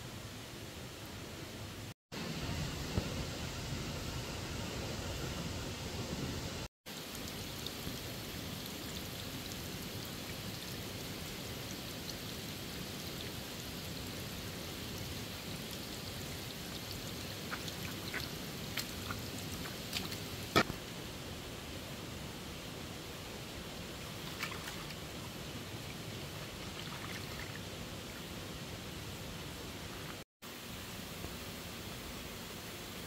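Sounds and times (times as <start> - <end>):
steady rain: 1.7 - 33.0
stream water rushing: 23.8 - 28.1.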